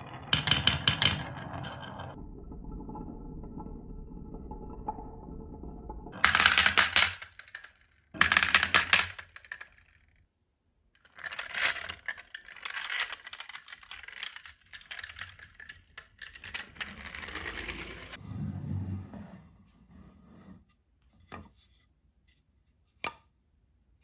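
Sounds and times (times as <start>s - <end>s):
marbles clattering into toy truck: 0.0s - 2.0s, 6.2s - 10.2s, 11.0s - 18.2s
toy truck rattling: 11.0s - 18.2s.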